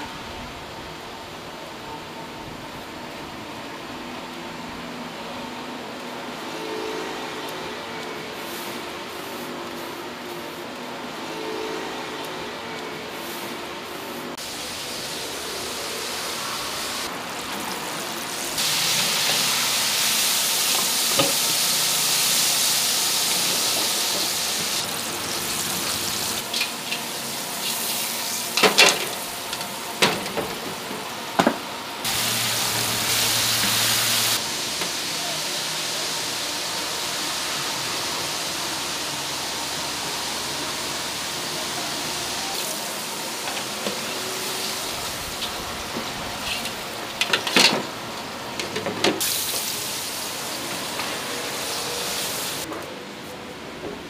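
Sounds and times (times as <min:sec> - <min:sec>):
hot oil sizzling: 0:14.4 - 0:30.6, 0:32.0 - 0:48.6, 0:49.2 - 0:52.7.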